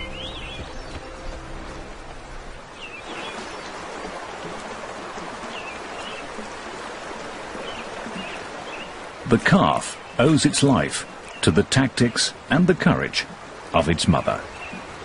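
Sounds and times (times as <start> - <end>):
bird chirps: 0.0 - 1.4
river water flowing: 0.0 - 15.0.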